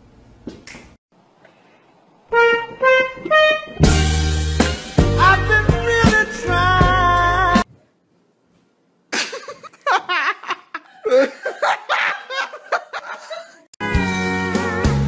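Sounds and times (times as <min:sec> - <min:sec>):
soul music: 0:02.3 - 0:07.7, 0:13.8 - 0:15.0
person laughing: 0:09.1 - 0:13.7.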